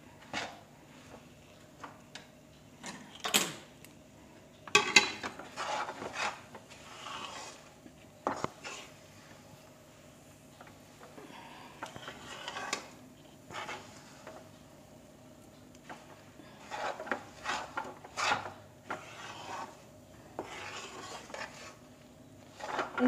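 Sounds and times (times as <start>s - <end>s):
metal spatula scraping metal pan: 4.8s - 7.7s, 12.0s - 12.9s, 13.5s - 14.4s, 16.5s - 19.8s, 20.4s - 21.8s, 22.5s - 23.0s.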